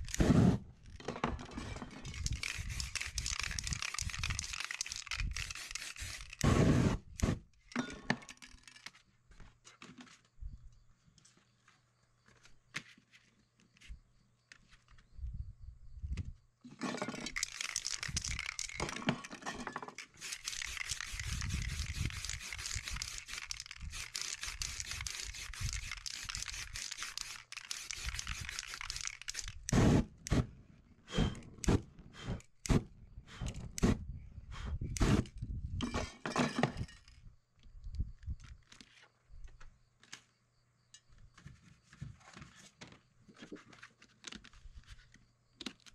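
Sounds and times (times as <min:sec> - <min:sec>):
spray paint can hissing: 0:02.2 - 0:07.4, 0:17.4 - 0:18.8, 0:20.0 - 0:30.4
short sharp spray bursts: 0:05.3 - 0:07.4, 0:20.2 - 0:30.4.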